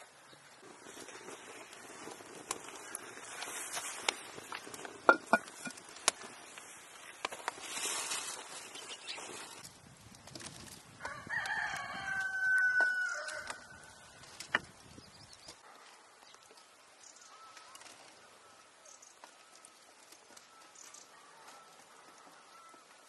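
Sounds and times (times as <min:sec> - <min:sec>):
rooster crowing: 0:11.0 - 0:14.0.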